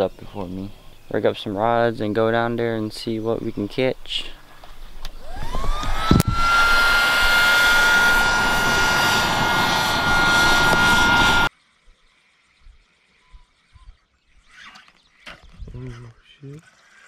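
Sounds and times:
high-speed motor whine: 5.0 - 11.5
loud rushing noise: 5.3 - 11.5.

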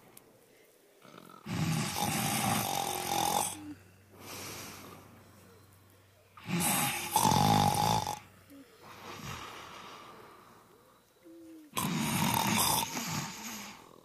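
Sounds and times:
person snoring: 1.0 - 5.0, 6.4 - 8.3, 11.7 - 14.0
soft breath out: 3.6 - 6.2, 8.5 - 11.6.

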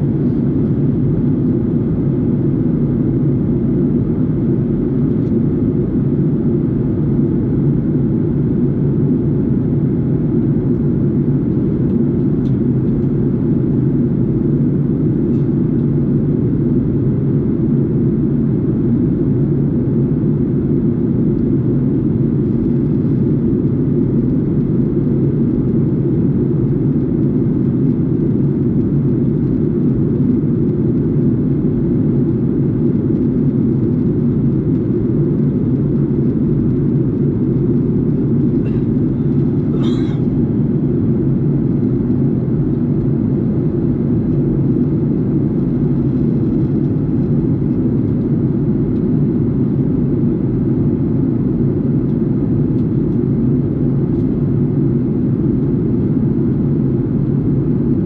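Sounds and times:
airliner cabin engine rumble: 0.0 - 58.0.

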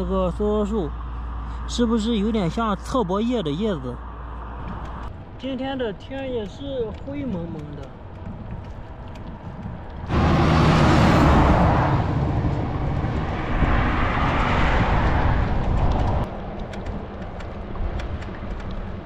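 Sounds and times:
road noise: 0.0 - 19.0
wind on microphone: 7.0 - 19.0
bicycle tyre hum: 8.0 - 19.0
car passing: 9.9 - 19.0.

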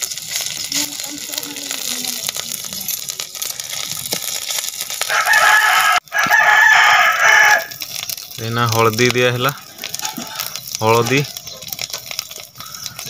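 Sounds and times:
food sizzling in oil: 0.0 - 13.0
rooster crowing: 5.1 - 7.8.

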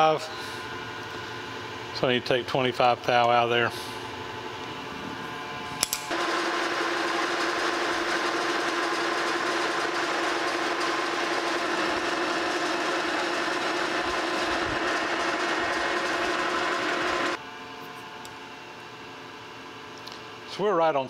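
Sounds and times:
metal lathe running: 6.1 - 17.4.

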